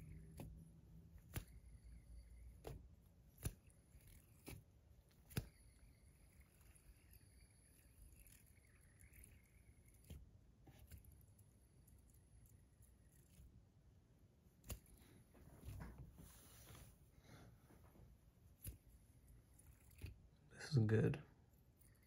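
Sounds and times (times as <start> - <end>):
fidget spinner clicks: 0.0 - 13.5, 18.6 - 20.2, 21.7 - 22.0.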